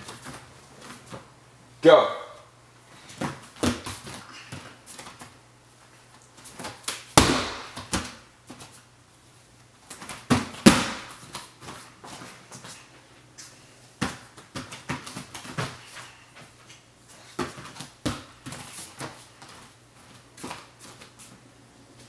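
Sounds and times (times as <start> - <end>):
thuds on tumbling mat: 6.6 - 8.2, 10.0 - 11.2.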